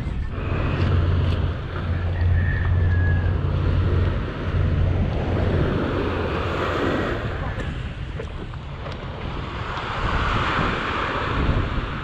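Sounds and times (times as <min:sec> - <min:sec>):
steady low hum: 0:00.0 - 0:09.4
wind buffeting microphone: 0:00.0 - 0:12.0.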